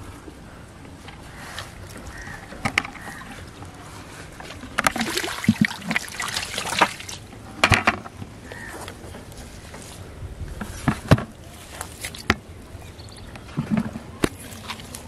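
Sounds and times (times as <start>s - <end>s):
water splashing onto grass: 4.8s - 7.3s.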